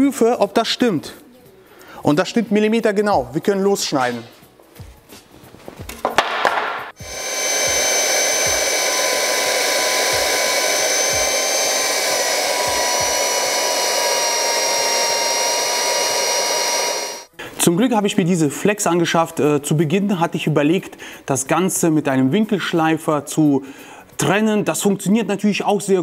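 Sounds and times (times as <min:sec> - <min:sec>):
band saw cutting steel: 0:07.0 - 0:17.3.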